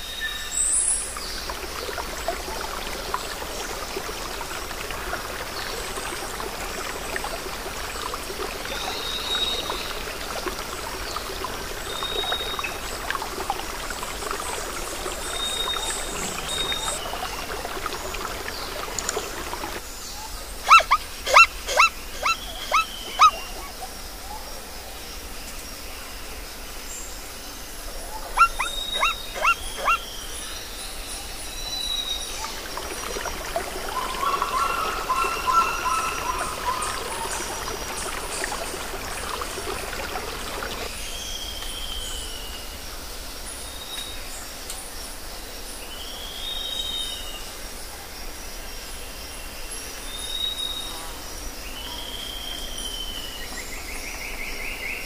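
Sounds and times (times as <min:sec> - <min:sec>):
high bird whistles: 0:20.7 - 0:23.5
sharp pitched animal calls: 0:20.7 - 0:23.7, 0:28.4 - 0:30.0.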